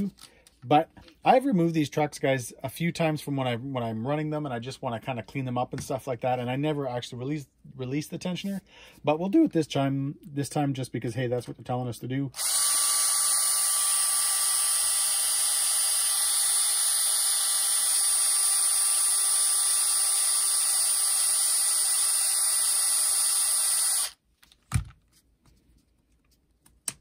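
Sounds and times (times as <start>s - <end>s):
electric screwdriver whining: 12.4s - 24.2s.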